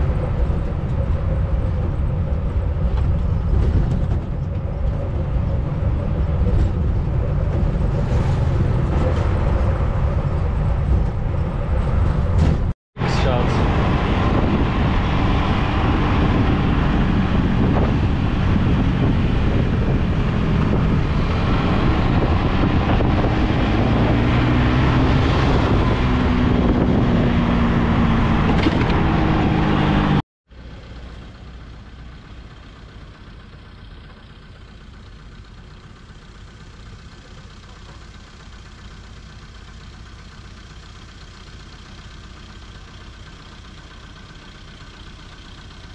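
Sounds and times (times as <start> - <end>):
low rumble: 0.0 - 30.2
wind and road noise: 0.0 - 45.9.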